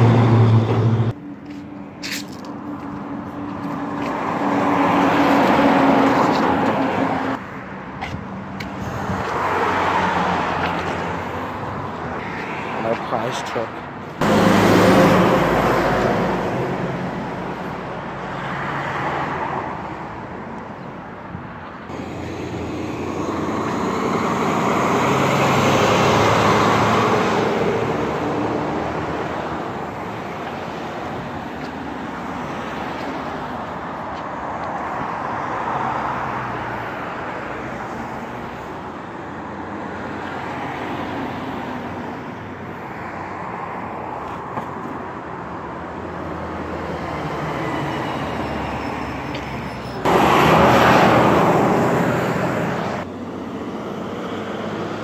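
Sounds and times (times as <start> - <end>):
vehicles driving past: 0.0 - 55.0.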